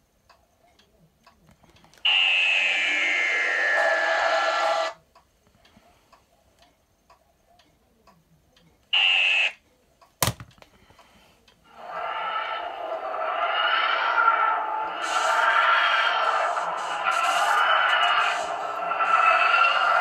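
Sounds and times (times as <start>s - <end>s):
faint steady ticking: 0.0s - 2.1s, 5.0s - 9.0s, 9.6s - 11.8s
whooshing with falling whine: 2.1s - 5.0s, 11.7s - 20.0s.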